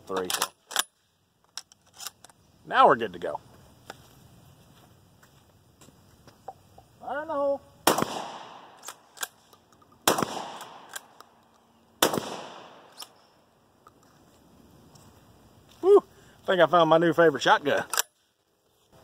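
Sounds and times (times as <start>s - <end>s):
shotgun shots echoing: 7.8s - 9.2s, 10.0s - 11.1s, 12.0s - 13.2s
short vocal call: 15.8s - 16.2s.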